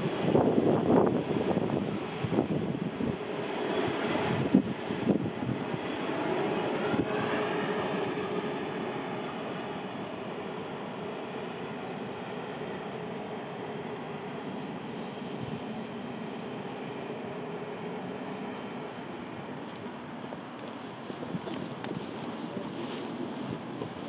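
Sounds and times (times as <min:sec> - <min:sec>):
distant train hum: 0:00.0 - 0:24.0
train wheels rumbling on rails: 0:19.1 - 0:24.0.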